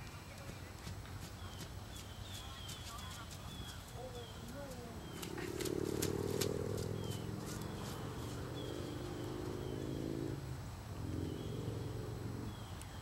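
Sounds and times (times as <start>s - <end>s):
horse hoofbeats on sand: 0.0s - 8.9s
bird chirping: 0.3s - 10.4s, 11.0s - 13.0s.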